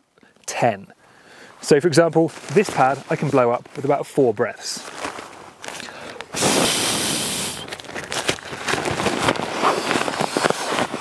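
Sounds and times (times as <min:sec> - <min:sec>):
nylon sack crinkling: 0:02.2 - 0:11.0
breath blown into inflation sack: 0:06.3 - 0:07.7.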